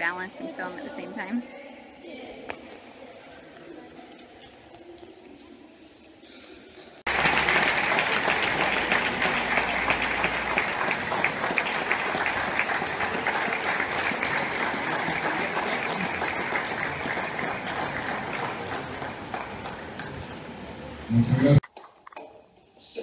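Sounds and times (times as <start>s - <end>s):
crowd applauding: 7.1s - 21.2s.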